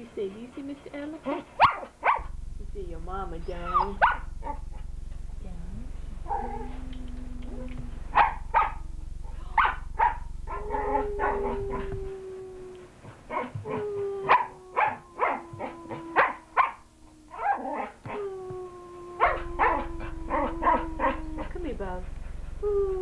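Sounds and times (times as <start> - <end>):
dog yipping: 1.3 - 2.3, 3.7 - 4.6, 8.1 - 8.8, 9.6 - 11.9, 13.3 - 16.8, 19.2 - 21.5
dog whining: 9.6 - 23.0.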